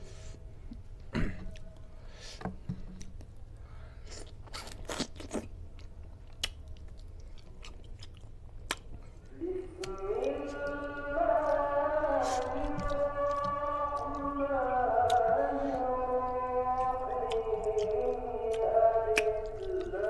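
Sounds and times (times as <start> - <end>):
wet chewing: 4.1 - 20.0
lip smacks: 6.3 - 10.4, 16.3 - 20.0.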